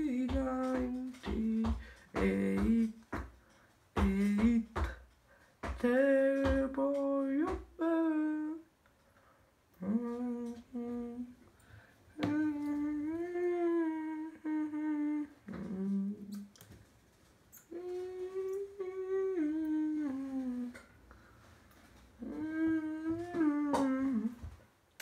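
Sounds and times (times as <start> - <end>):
man humming: 9.8 - 11.4, 12.2 - 16.6, 17.6 - 20.9, 22.2 - 24.5.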